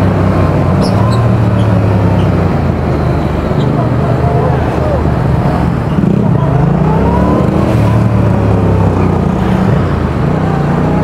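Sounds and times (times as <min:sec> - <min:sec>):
motorcycle engine accelerating: 0:05.1 - 0:11.0.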